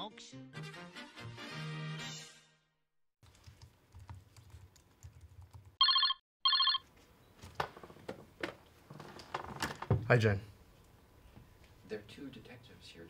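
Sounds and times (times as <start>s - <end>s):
telephone ringer trills: 5.8s - 6.8s.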